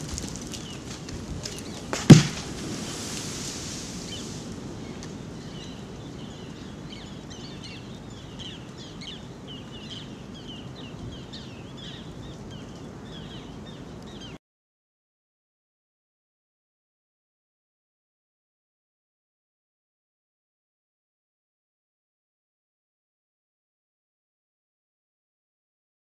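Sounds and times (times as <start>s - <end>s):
debris ticking onto rocks: 0.0s - 3.6s
steady outdoor hiss: 0.0s - 14.4s
small birds chirping: 0.1s - 14.4s
loud sharp thump: 2.0s - 2.8s.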